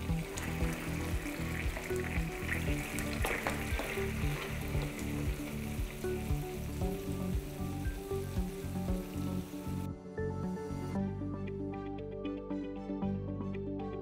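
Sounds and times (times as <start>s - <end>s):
oil sizzling in a frying pan: 0.0s - 9.9s
background music: 0.0s - 14.0s.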